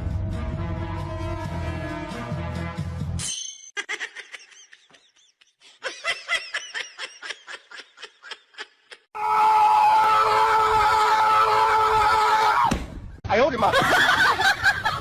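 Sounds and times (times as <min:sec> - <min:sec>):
person giggling: 0:03.8 - 0:09.1.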